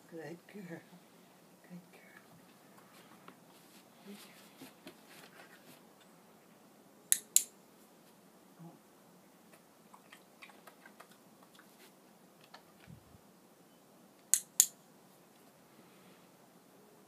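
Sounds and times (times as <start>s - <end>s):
training clicker clicking: 7.1s - 7.5s.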